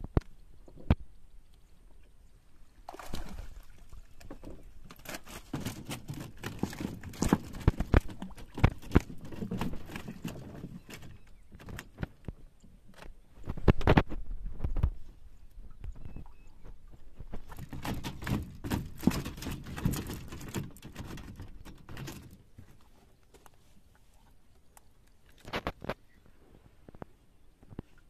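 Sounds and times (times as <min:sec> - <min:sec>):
water sloshing and splashing: 0:02.8 - 0:12.2, 0:16.0 - 0:26.0.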